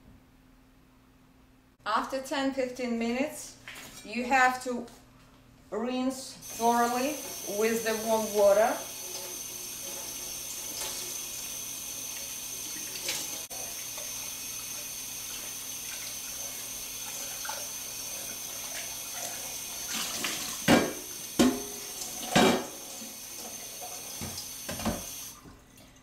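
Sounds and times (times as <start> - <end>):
faucet running into sink: 6.4 - 26.0
pot knocking against sink: 20.6 - 22.8, 24.2 - 25.1.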